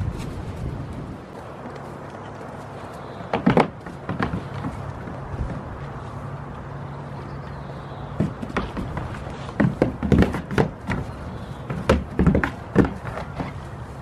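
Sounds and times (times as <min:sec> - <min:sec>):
hooves knocking on wooden roof: 0:01.4 - 0:06.7, 0:08.1 - 0:13.8.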